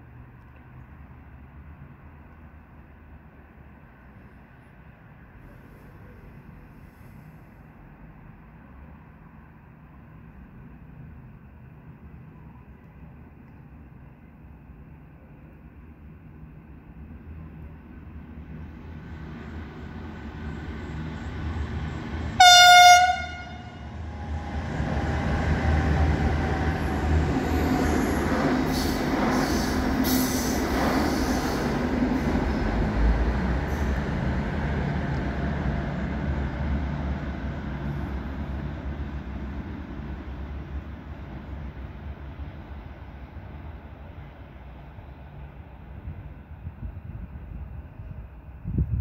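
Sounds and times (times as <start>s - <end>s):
train rumbling past: 0.0s - 49.0s
train horn squeak: 22.4s - 23.9s.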